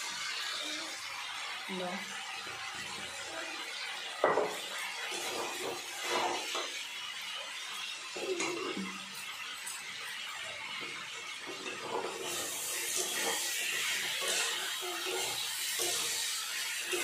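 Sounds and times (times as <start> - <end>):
metal spatula scraping pan: 4.5 - 6.8, 11.6 - 17.0.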